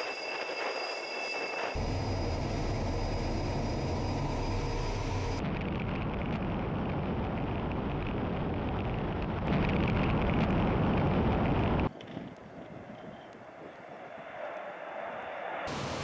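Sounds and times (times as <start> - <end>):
jet engine roar: 0.0 - 5.4, 14.0 - 16.0.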